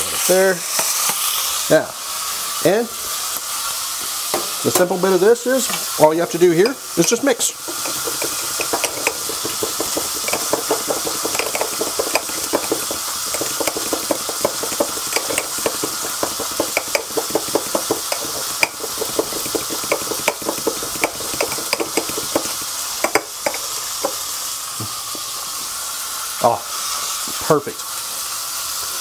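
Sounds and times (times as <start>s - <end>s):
fish sizzling in a pan: 0.0s - 29.0s
utensil clicking against glass: 6.6s - 23.7s.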